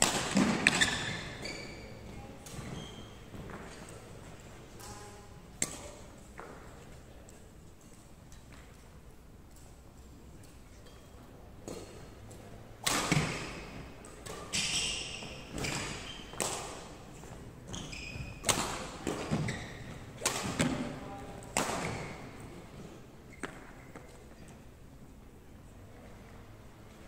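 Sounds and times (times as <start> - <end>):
racket hitting shuttlecock: 0.0 - 1.7, 5.6 - 6.2, 12.8 - 16.9, 17.7 - 22.3.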